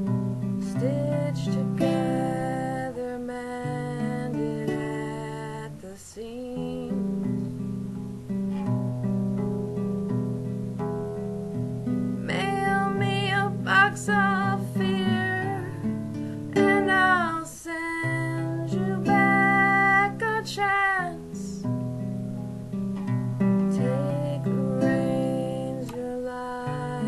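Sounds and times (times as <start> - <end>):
acoustic classical guitar: 0.0 - 27.0
woman singing with vibrato: 0.6 - 7.5, 12.2 - 15.9, 16.5 - 21.7, 23.7 - 27.0.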